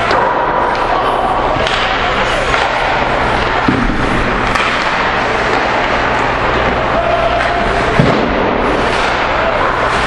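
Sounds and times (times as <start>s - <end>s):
hockey sticks and puck clacking: 0.0s - 10.0s
murmur of crowd voices: 0.0s - 10.0s
thud: 3.6s - 4.8s, 7.9s - 9.1s.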